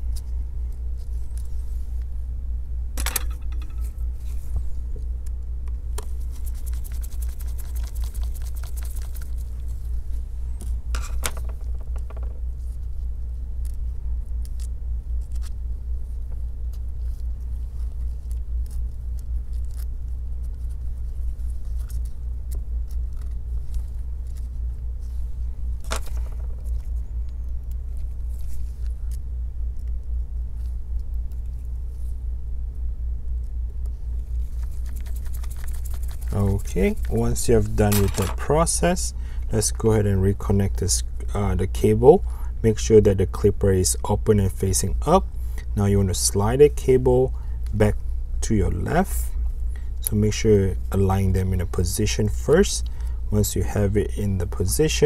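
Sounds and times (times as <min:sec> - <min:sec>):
low hum: 0:00.0 - 0:55.0
small parts clicking and scraping: 0:03.0 - 0:04.0, 0:10.6 - 0:12.3, 0:25.8 - 0:27.0, 0:34.6 - 0:38.5.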